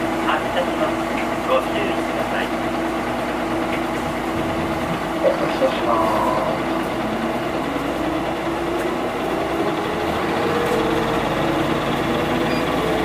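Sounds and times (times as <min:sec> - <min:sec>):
bus diesel engine running: 0:00.0 - 0:13.0.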